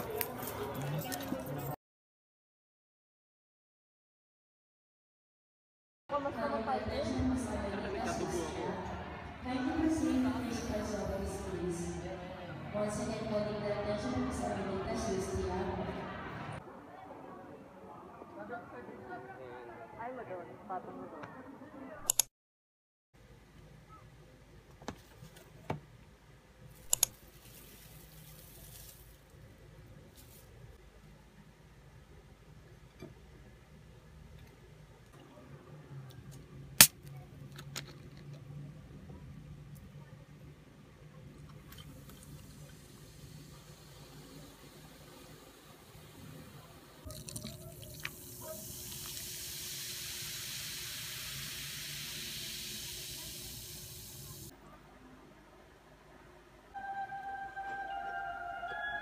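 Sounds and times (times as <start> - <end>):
plastic wrap rustling: 27.2 - 29.4
soda fizzing over ice: 27.3 - 29.1, 41.8 - 54.5.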